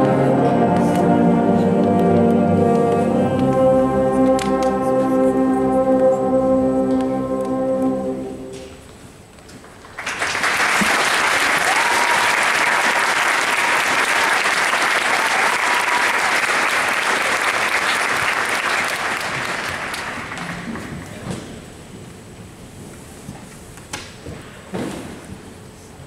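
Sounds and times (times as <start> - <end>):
concert band final chord: 0.0 - 8.9
audience applause: 9.7 - 21.2.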